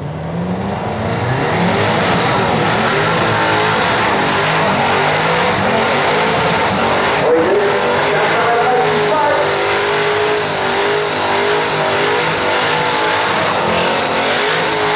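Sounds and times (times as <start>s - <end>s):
car engine revving hard: 0.0s - 14.9s.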